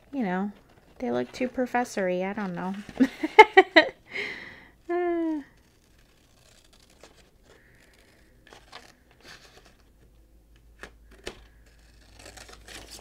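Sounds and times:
paper rustling: 0.0s - 4.0s, 4.8s - 13.0s
scissors snipping paper: 5.1s - 9.8s, 11.1s - 13.0s.

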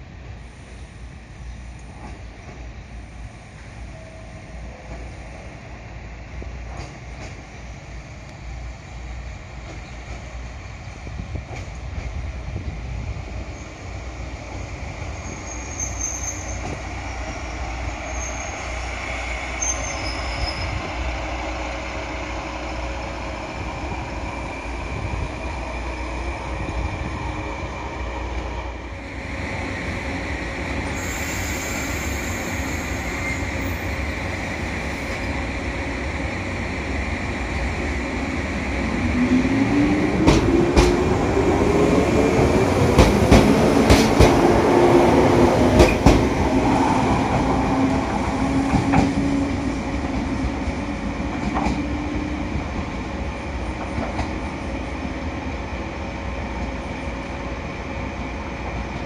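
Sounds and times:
train rumbling on rails: 0.0s - 59.0s
high-pitched wheel squeals: 15.2s - 16.7s, 19.5s - 20.9s.

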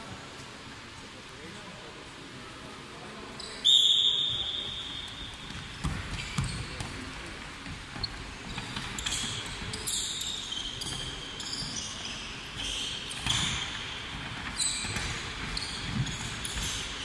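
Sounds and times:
ball bouncing: 5.4s - 9.8s.

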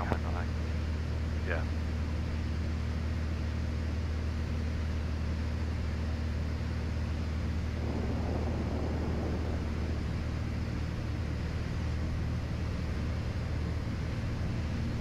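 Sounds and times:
airplane engine and propeller droning: 0.0s - 15.0s.

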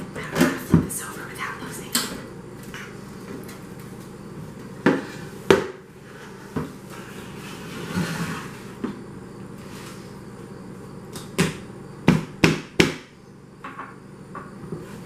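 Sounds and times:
bowl scraping on pan: 6.0s - 8.8s.

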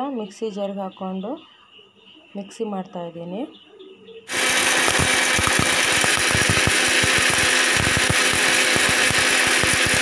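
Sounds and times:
mixer grinder motor running: 4.3s - 10.0s.

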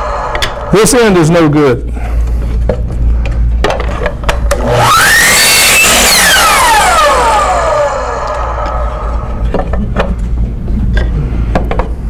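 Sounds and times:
miter saw motor whine: 4.5s - 9.7s.

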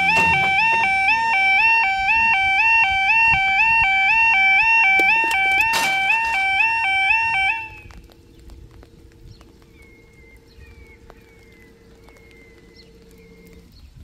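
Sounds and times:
crossing alarm two-tone warble: 0.0s - 9.2s
quiet steady hum: 0.0s - 14.0s
faint clicks: 7.8s - 14.0s.

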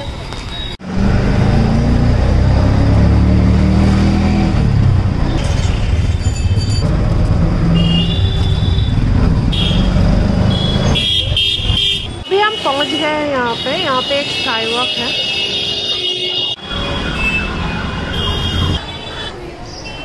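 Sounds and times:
road noise: 0.0s - 20.0s
vehicle engine droning: 0.8s - 11.0s.

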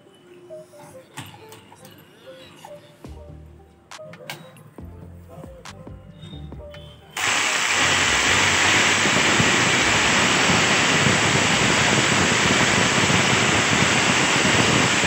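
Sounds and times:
demolition hammer running: 7.2s - 15.0s.

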